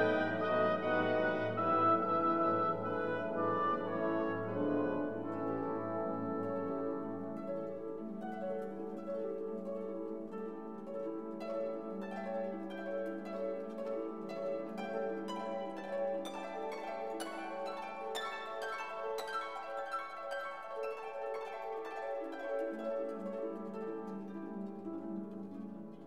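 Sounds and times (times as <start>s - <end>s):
plucked string music: 0.0s - 19.2s.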